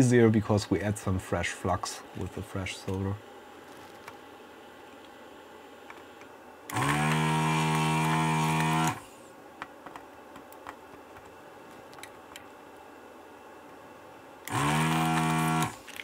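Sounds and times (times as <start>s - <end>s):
vacuum pump whirring: 5.8s - 12.6s, 14.4s - 16.0s
faint clicks and taps: 9.6s - 12.6s.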